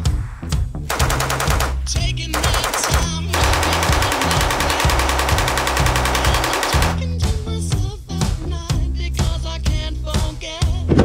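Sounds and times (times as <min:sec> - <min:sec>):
background music with bass line: 0:00.0 - 0:11.0
machine gun firing automatic bursts: 0:00.9 - 0:07.0.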